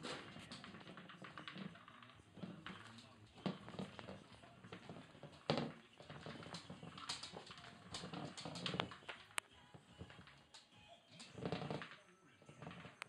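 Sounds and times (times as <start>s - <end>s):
ball knocking on tiled floor: 0.0s - 13.0s
ball tapping: 0.0s - 13.0s.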